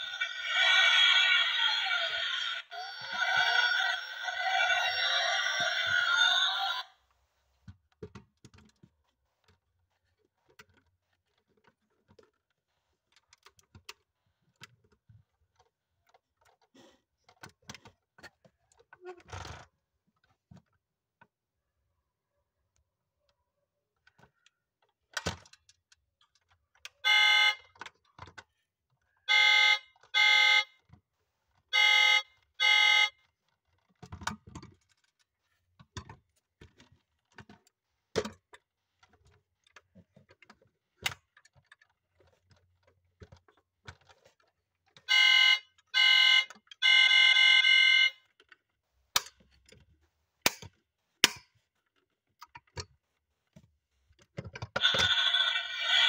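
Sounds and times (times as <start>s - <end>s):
toy electronic horn honks: 0.0s - 6.9s, 27.0s - 27.6s, 29.3s - 30.7s, 31.8s - 33.2s, 45.1s - 48.2s, 54.8s - 56.0s.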